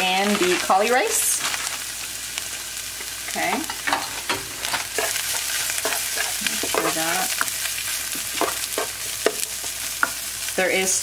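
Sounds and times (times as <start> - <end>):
rice sizzling in hot oil: 0.0 - 11.0
spatula scraping a frying pan: 3.6 - 10.2.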